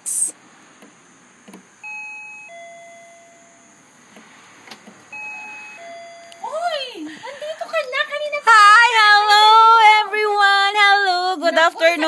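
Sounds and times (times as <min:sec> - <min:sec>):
two-note doorbell chime: 0:01.8 - 0:03.8, 0:05.1 - 0:06.7.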